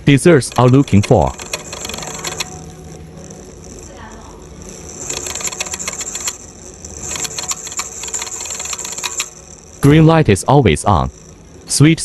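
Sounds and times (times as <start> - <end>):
rapid mechanical clicking rattle: 0.0 - 12.0
small motor humming: 0.0 - 12.0.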